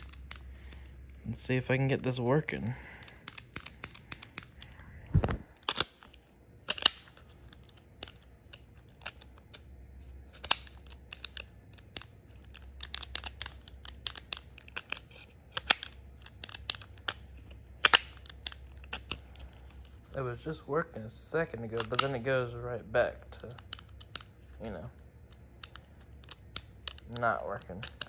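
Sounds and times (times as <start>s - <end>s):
revolver metallic clicks: 2.2s - 4.8s.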